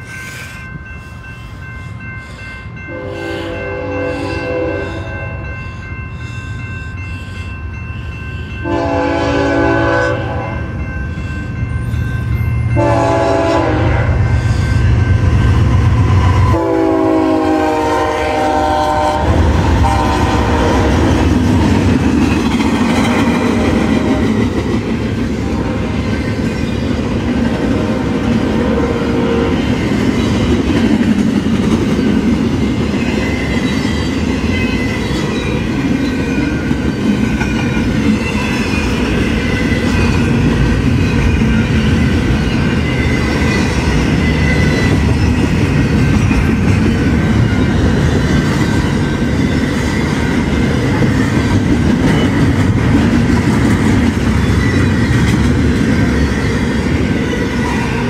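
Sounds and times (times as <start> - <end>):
train wheels on rails: 0.0 - 58.0
train horn blasts: 2.9 - 5.5, 8.6 - 10.7, 12.8 - 14.9, 16.3 - 21.3, 28.6 - 29.6.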